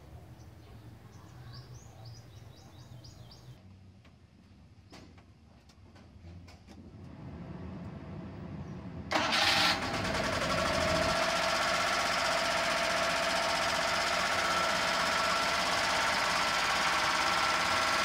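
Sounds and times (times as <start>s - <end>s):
engine starting and idling: 9.1s - 18.0s.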